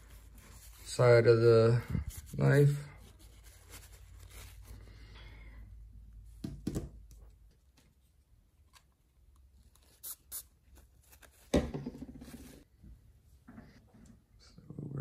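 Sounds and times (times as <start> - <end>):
paper towel crinkling: 0.0 - 4.9.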